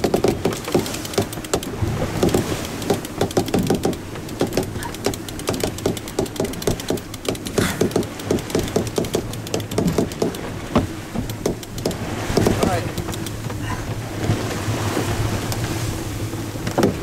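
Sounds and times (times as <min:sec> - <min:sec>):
winch ratcheting clicks: 0:00.0 - 0:13.6
wind and water rushing: 0:00.0 - 0:17.0.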